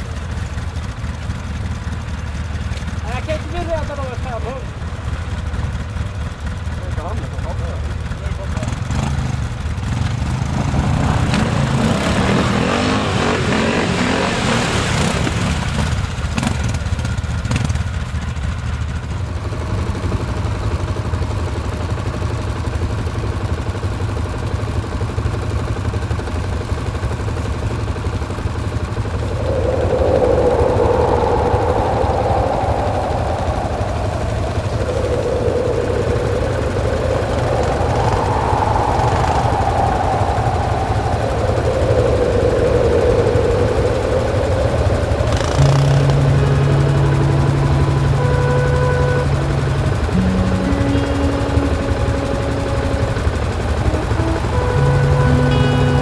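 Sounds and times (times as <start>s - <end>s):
engines idling with low hum: 0.0s - 56.0s
engine revving up and down: 8.5s - 16.8s, 28.9s - 56.0s
loud rushing noise: 9.0s - 16.2s, 28.2s - 56.0s.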